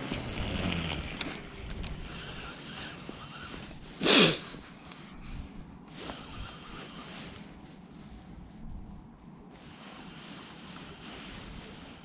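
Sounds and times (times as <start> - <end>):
person sniffing: 3.2 - 7.2.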